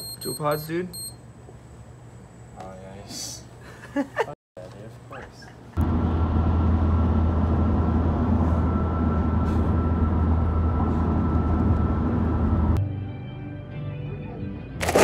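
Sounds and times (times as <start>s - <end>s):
car road and engine drone: 5.8s - 12.8s.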